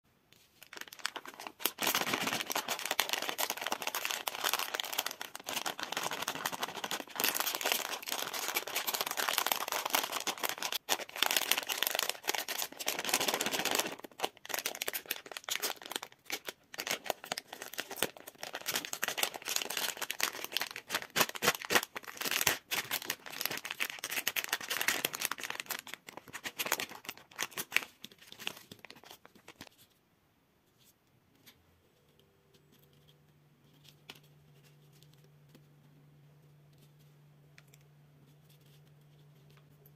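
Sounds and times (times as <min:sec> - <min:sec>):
plastic bag crinkling: 0:00.5 - 0:29.7.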